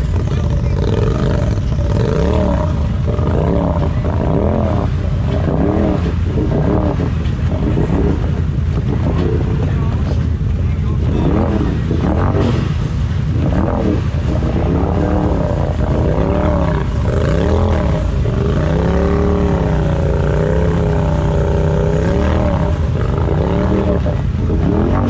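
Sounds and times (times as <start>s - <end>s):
car engine revving: 0.0s - 25.0s.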